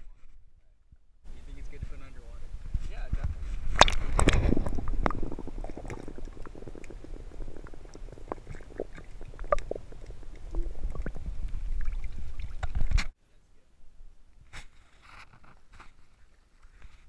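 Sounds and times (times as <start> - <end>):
muffled underwater churning and bubbling: 3.7 - 13.0
clicks and pops: 3.7 - 13.1.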